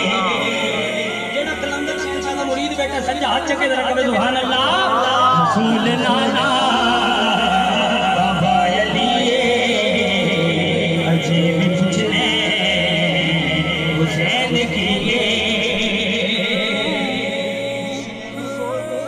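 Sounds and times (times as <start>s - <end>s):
man singing through microphone: 0.0s - 19.0s.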